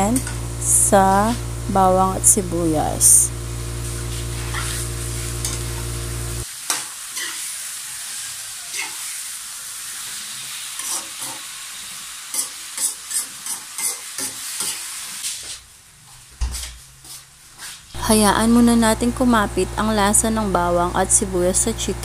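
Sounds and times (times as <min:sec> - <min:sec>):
low steady hum: 0:00.0 - 0:06.4, 0:18.0 - 0:22.0
chicken sizzling in a wok: 0:00.0 - 0:16.0
spatula scraping and tapping a pan: 0:12.3 - 0:14.8.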